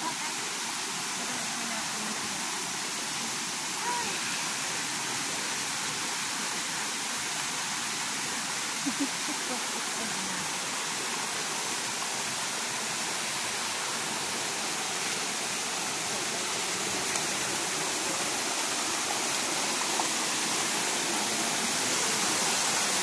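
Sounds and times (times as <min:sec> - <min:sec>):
waterfall rushing over rocks: 0:00.0 - 0:23.0.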